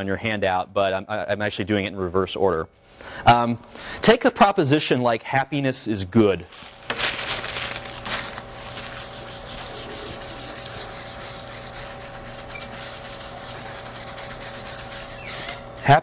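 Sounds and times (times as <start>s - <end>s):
steady hum: 6.2s - 16.0s
scratchy rubbing on transparency: 6.6s - 15.7s.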